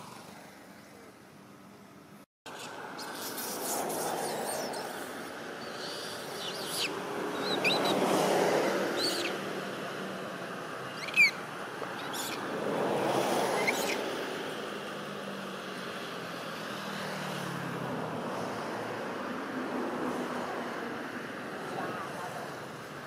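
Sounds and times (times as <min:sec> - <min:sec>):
bird chirps: 0:02.5 - 0:05.0, 0:05.6 - 0:08.0, 0:09.0 - 0:09.4, 0:10.9 - 0:11.4, 0:12.0 - 0:12.4.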